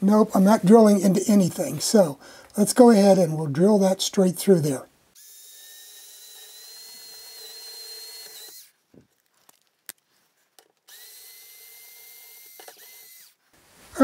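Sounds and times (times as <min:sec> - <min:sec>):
power drill whining: 0:05.2 - 0:08.8, 0:10.9 - 0:13.4.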